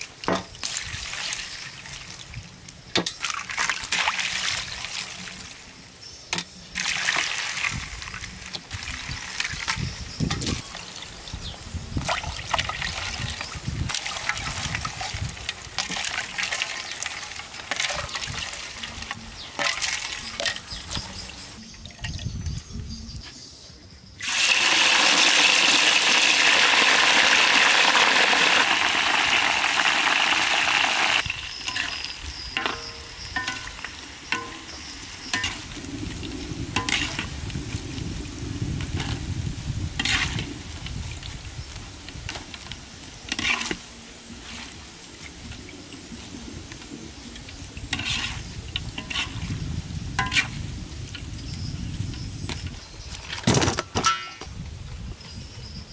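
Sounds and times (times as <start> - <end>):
food deep-frying in oil: 0.0 - 22.7, 24.2 - 53.4
wire strainer clinking against wok: 31.6 - 35.7, 50.1 - 50.6.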